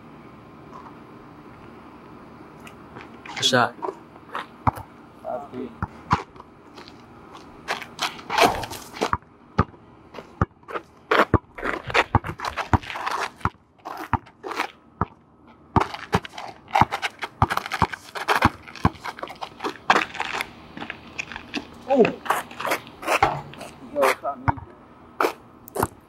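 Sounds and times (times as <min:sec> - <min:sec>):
basketball bouncing on asphalt: 0:03.9 - 0:05.0, 0:05.7 - 0:26.0
sneakers scuffing on asphalt: 0:15.8 - 0:24.2.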